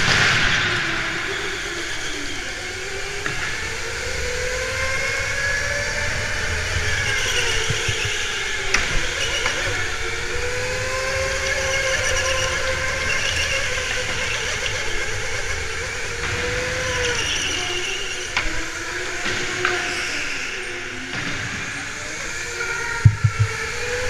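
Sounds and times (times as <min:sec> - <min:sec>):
wind and tyre noise: 0:00.0 - 0:24.0
electric motor whine: 0:01.2 - 0:24.0
sharp knocks: 0:07.0 - 0:09.6, 0:23.0 - 0:24.0.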